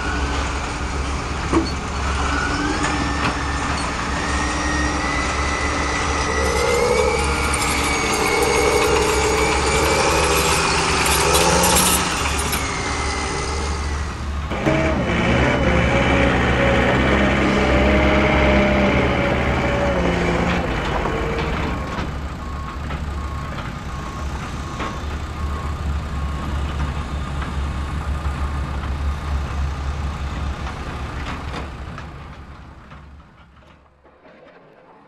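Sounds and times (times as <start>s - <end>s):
construction machinery diesel rumble: 0.0s - 34.0s
reversing alarm beeping: 2.2s - 14.4s, 21.4s - 28.7s.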